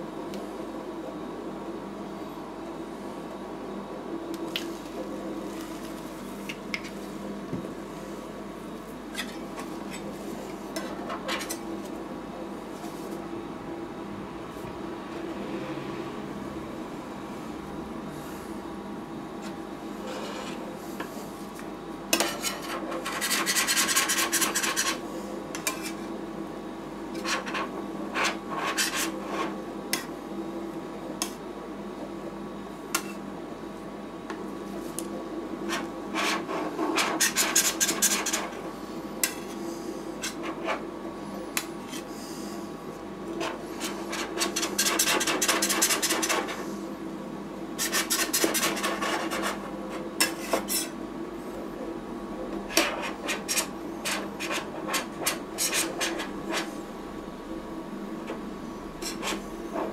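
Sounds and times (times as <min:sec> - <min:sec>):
metal spatulas scraping steel plate: 0:22.2 - 0:25.0, 0:50.2 - 0:51.0.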